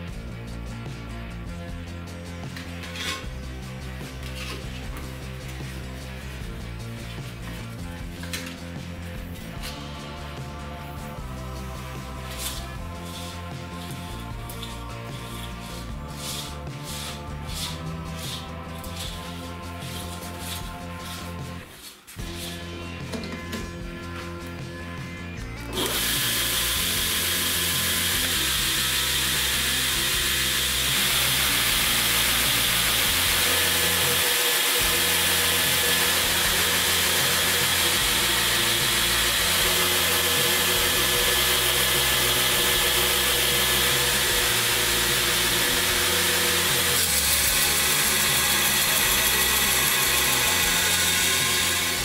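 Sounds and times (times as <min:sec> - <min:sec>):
metal plate grinding on belt: 0:02.7 - 0:03.4, 0:25.8 - 0:52.0
belt grinder running: 0:25.7 - 0:52.0.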